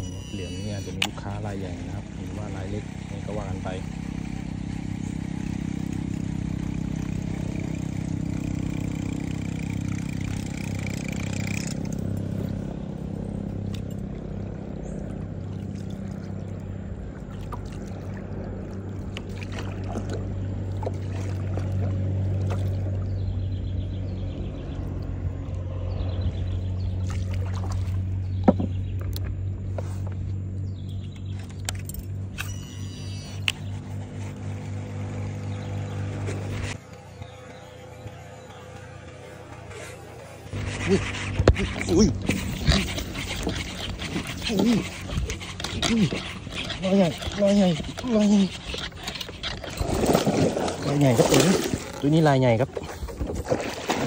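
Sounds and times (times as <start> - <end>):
boat motor humming: 0.0 - 54.0
fishing reel clicks: 10.0 - 12.0, 32.4 - 33.6
water rushing past hull: 48.2 - 54.0.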